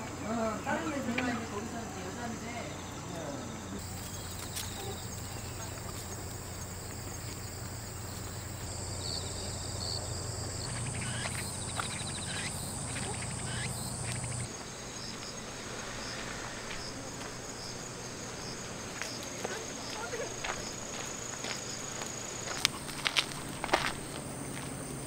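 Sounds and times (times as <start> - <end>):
cicadas shrilling: 0.0 - 25.0
short insect chirps: 3.6 - 25.0
low steady hum: 3.8 - 14.5.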